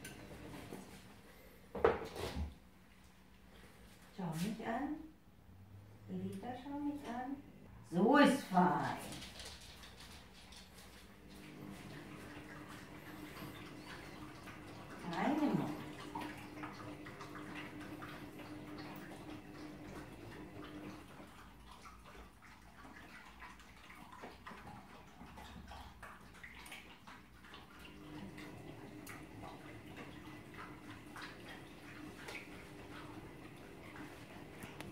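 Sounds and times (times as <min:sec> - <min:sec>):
dogs slurping and chewing: 0:08.6 - 0:34.9.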